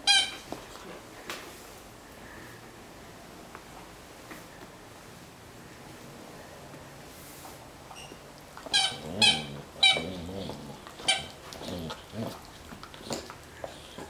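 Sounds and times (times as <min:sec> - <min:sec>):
dog toy squeaking: 0:00.0 - 0:00.4, 0:08.0 - 0:10.2, 0:11.0 - 0:11.4
dog chewing: 0:08.3 - 0:14.0.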